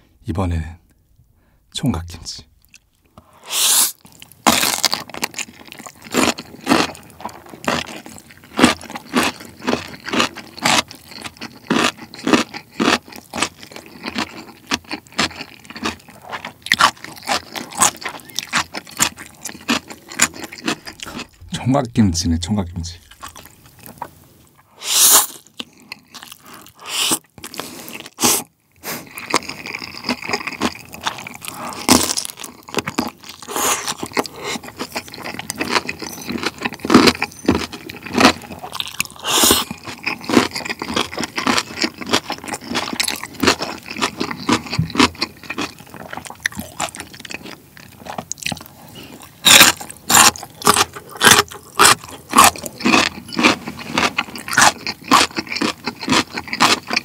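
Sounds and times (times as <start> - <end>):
noodles slurped: 24.8 - 47.0
sharp crunches: 49.4 - 56.8.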